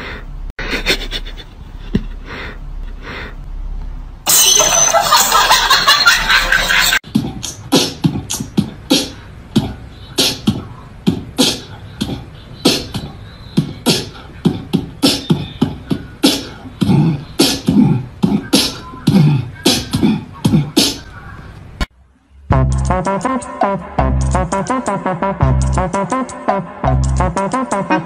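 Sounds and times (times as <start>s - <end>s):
beatbox percussion: 7.0s - 21.1s, 22.5s - 28.0s.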